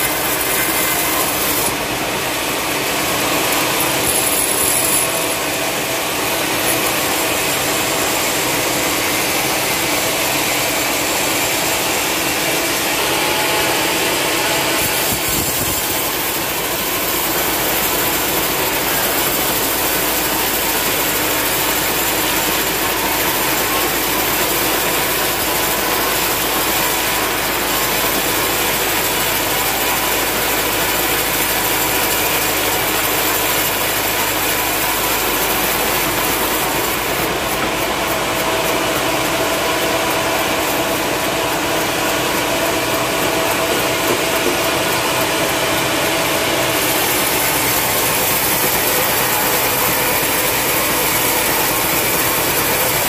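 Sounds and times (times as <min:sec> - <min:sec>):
band saw ripping through log: 0:00.0 - 0:38.7.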